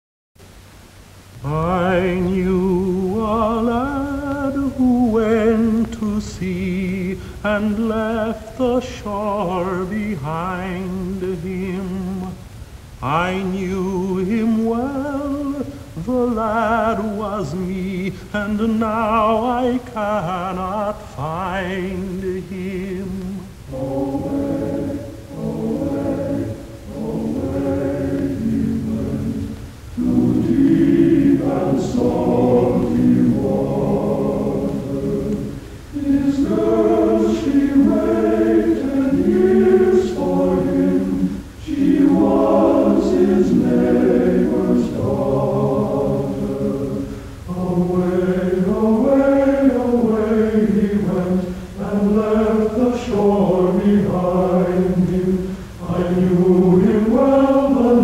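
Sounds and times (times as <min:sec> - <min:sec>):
choir singing a cappella: 0:01.4 - 0:12.4, 0:13.0 - 0:58.0.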